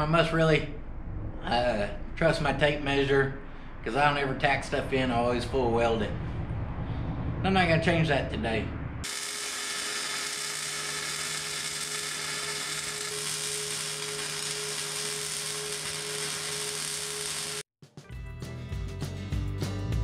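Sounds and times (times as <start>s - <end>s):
welding arc crackling sizzle: 9.0s - 17.7s.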